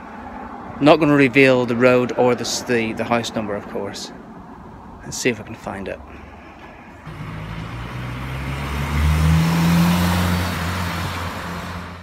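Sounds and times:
car driving past: 6.6 - 12.0.

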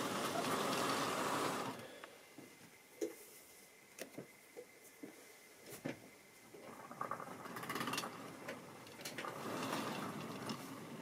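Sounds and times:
model train wheels and motor rumble: 0.0 - 2.2, 6.4 - 11.0.

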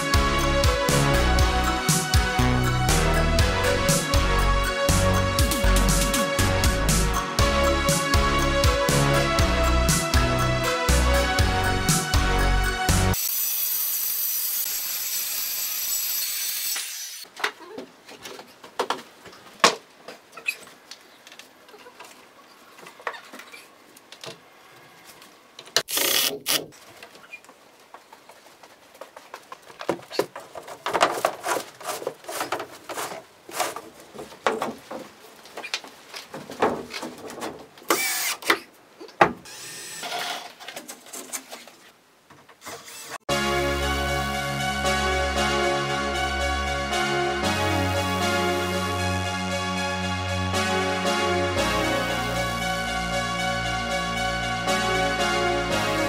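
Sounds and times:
circular saw cutting: 13.1 - 17.2, 37.9 - 38.4, 39.5 - 40.4
power tool burst: 13.2 - 17.2, 25.9 - 26.6, 37.9 - 38.5, 39.5 - 40.4
knocks and clatter of boards: 18.2 - 19.9, 29.0 - 37.8, 38.5 - 39.4.

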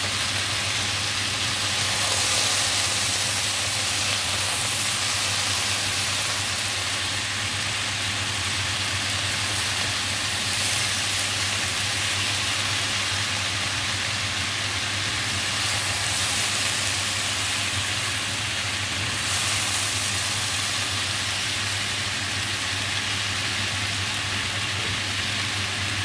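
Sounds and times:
food sizzling in frying pan: 0.0 - 26.0
spatula turning food: 0.5 - 8.1.

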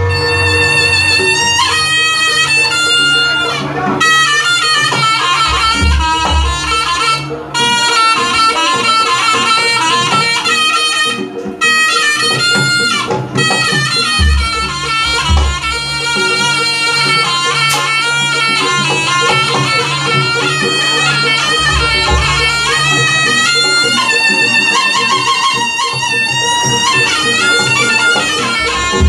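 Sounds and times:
gamelan ensemble: 0.0 - 29.0
reed shawm melody: 0.0 - 29.0.

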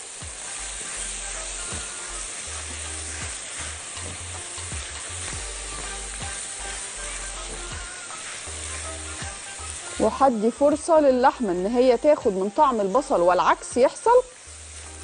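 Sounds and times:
spatula stirring in skillet: 0.0 - 11.0
meat and onions sizzling in oil: 0.0 - 15.0.

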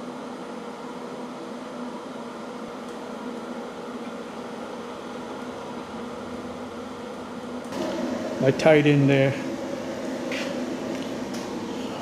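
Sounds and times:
welding arc sizzling hiss: 7.6 - 12.0.

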